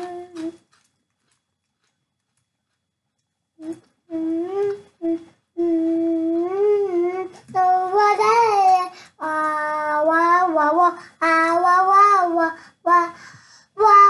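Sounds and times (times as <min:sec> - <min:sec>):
young child singing: 0:00.0 - 0:00.6, 0:03.6 - 0:14.0.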